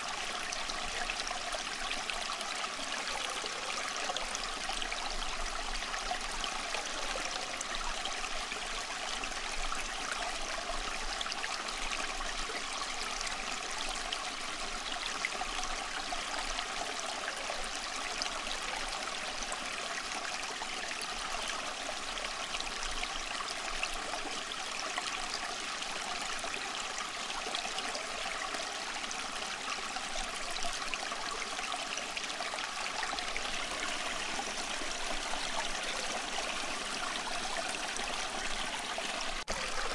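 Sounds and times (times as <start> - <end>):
running water: 21.6 - 39.9.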